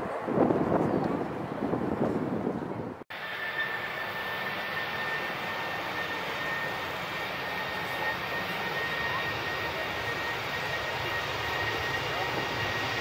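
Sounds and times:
airliner jet engines whining: 0:03.1 - 0:13.0.

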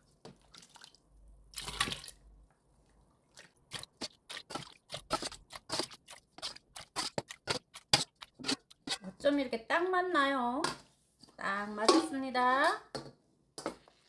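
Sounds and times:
liquid splash: 0:00.4 - 0:02.2.

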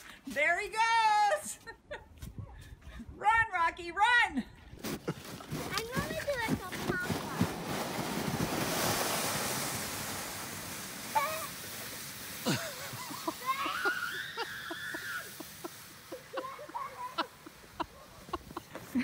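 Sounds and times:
footsteps crunching in snow: 0:04.8 - 0:10.3
rushing hiss: 0:06.0 - 0:19.0.

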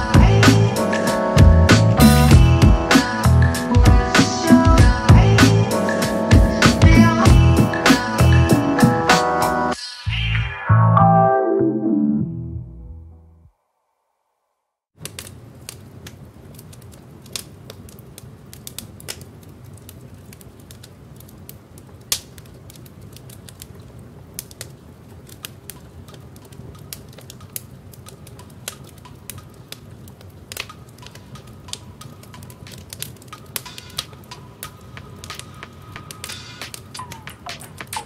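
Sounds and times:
steady low rumble: 0:01.4 - 0:08.5
record crackle clicks and pops: 0:15.0 - 0:38.0.

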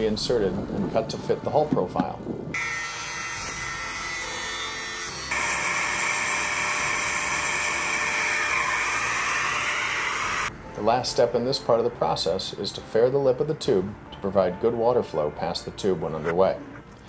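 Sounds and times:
angle grinder cutting metal: 0:02.6 - 0:10.5
power tool whining: 0:02.6 - 0:10.5.

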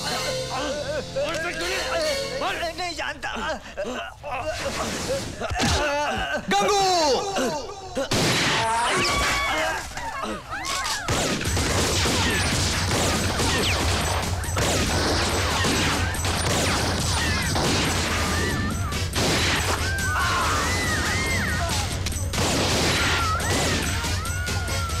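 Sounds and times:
fight hits and crashes: 0:11.1 - 0:20.4.

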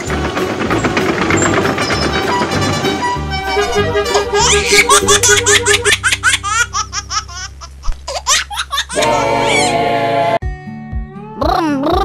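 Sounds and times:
background music: 0:00.0 - 0:07.0, 0:09.0 - 0:12.0
cartoon baby laughing and giggling: 0:04.1 - 0:09.7.

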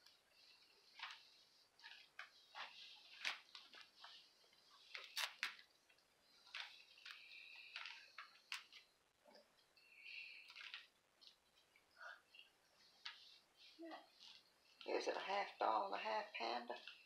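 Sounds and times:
plastic wrapping crinkling: 0:00.0 - 0:08.9, 0:10.3 - 0:11.6.

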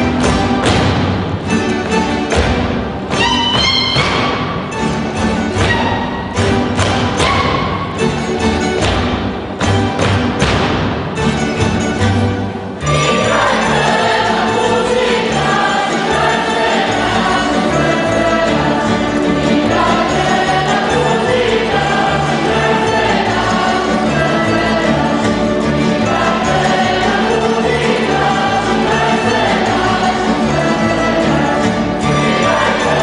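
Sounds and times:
plucked folk lutes playing: 0:00.0 - 0:33.0
group singing in chorus: 0:12.8 - 0:33.0.

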